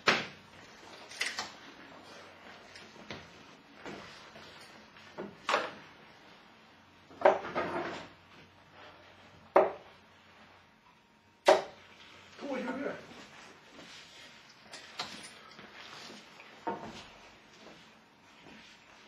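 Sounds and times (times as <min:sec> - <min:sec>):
darts thudding into dartboard: 0:00.0 - 0:00.4, 0:09.5 - 0:09.8, 0:11.4 - 0:11.8.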